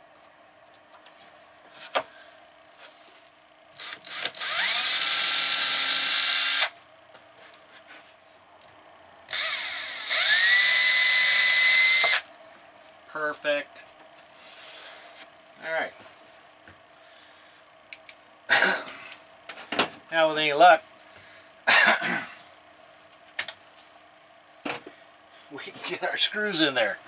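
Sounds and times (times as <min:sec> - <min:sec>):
cordless drill whining: 0:03.8 - 0:06.7, 0:09.3 - 0:12.2
drill trigger blips: 0:03.8 - 0:06.7, 0:09.3 - 0:12.2.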